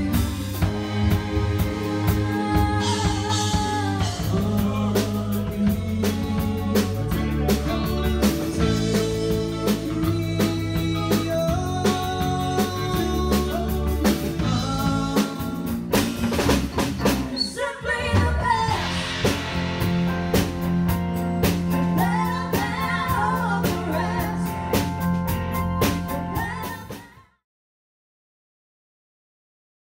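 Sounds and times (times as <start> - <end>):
person singing: 0.0 - 16.0, 21.7 - 25.1, 26.0 - 27.4
electric bass: 0.0 - 27.0
drum kit: 0.0 - 27.2
keyboards: 0.0 - 27.2.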